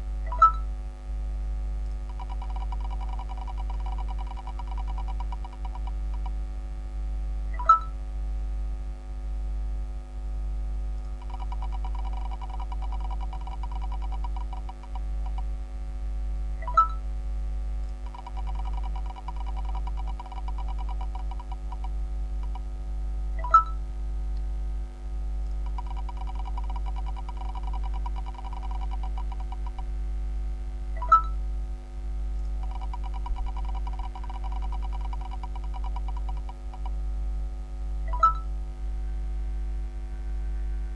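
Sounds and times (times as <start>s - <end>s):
low hum: 0.0s - 40.9s
prize wheel ticking: 2.1s - 5.9s, 11.2s - 15.4s, 18.1s - 22.6s, 25.7s - 29.8s, 32.6s - 36.9s.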